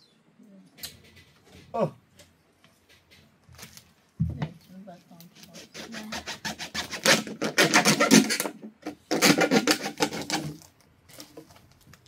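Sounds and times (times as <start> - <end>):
knife scraping plastic bottle: 5.4 - 11.4.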